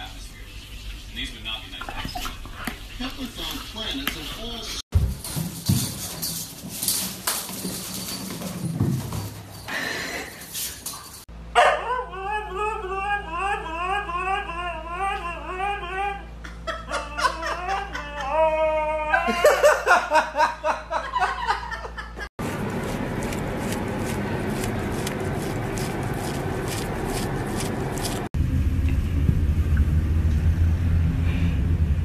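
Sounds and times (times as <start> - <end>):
husky howling and yelping: 11.6 - 19.5.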